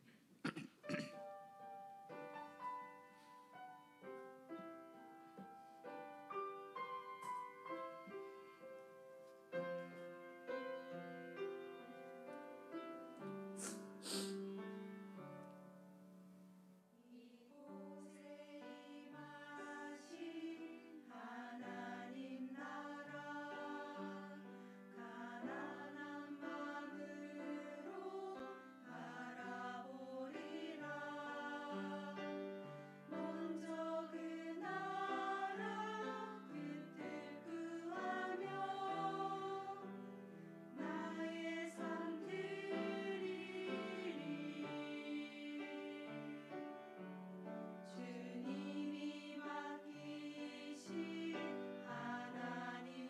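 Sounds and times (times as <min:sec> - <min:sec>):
piano hymn: 0:00.8 - 0:53.0
women's choir singing: 0:16.9 - 0:53.0.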